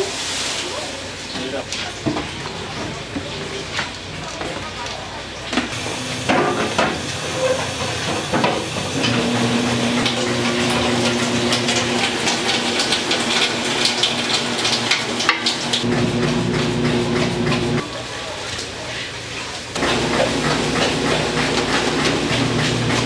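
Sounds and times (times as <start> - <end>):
steam hissing: 5.8 - 12.4.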